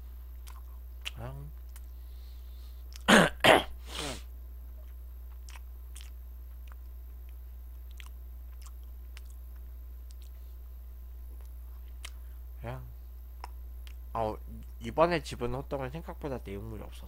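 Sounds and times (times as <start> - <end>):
chewing clicks: 0.4 - 1.9, 4.8 - 10.4, 11.4 - 12.2.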